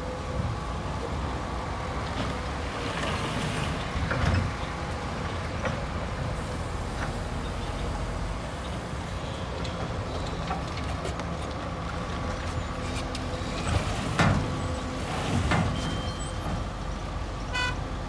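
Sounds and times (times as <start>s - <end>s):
excavator diesel engine: 0.0s - 18.0s.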